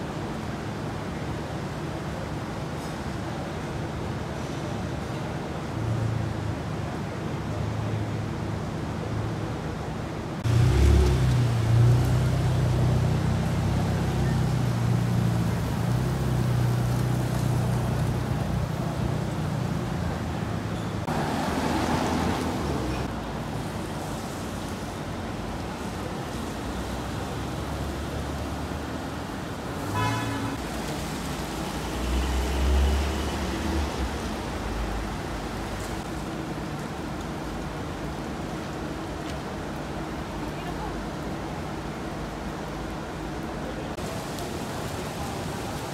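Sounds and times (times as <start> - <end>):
tyre hiss on wet road: 10.4 - 19.7, 21.0 - 42.7, 43.9 - 45.9
car horn toot: 29.9 - 30.6.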